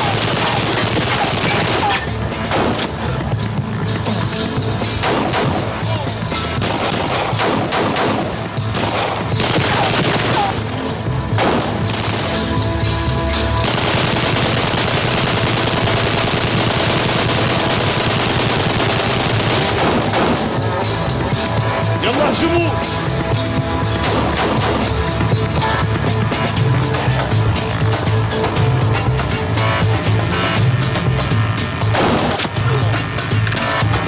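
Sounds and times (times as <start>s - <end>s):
heavy gunfire: 0.0s - 3.1s, 5.0s - 5.8s, 6.6s - 10.6s, 11.4s - 12.6s, 13.6s - 20.8s, 24.0s - 25.0s, 31.9s - 32.6s
music: 0.0s - 34.0s.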